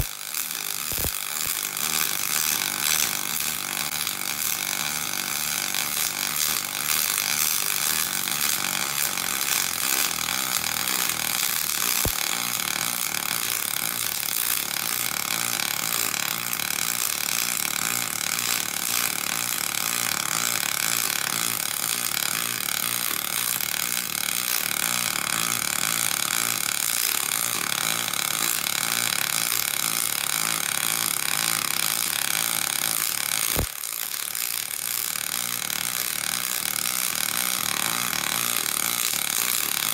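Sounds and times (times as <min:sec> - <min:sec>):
welding arc hissing and throbbing: 0:00.0 - 0:39.9.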